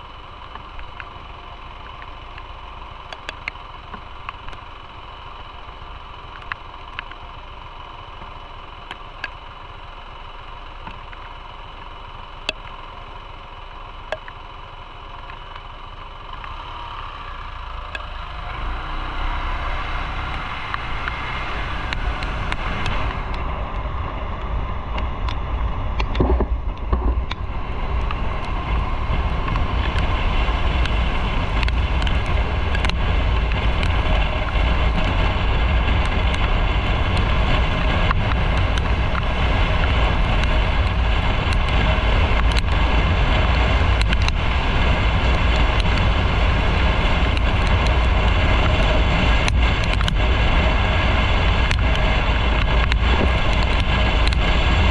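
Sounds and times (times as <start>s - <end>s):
motorcycle engine: 0.0s - 54.9s
wind rush on microphone: 20.2s - 54.9s.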